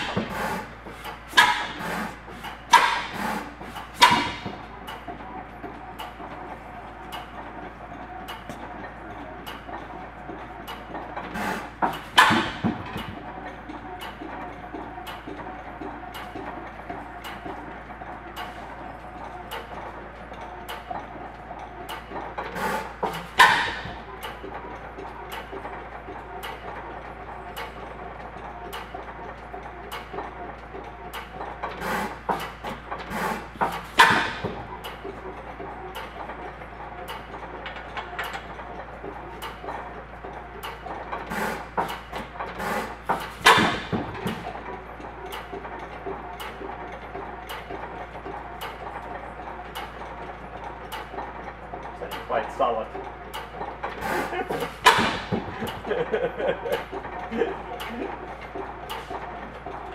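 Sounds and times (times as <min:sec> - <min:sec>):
stationary engine firing knocks: 0:43.1 - 0:44.5.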